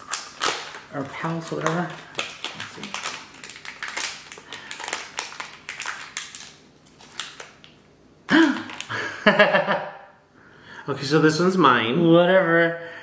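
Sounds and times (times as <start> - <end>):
packaging crinkling: 0.0 - 9.2.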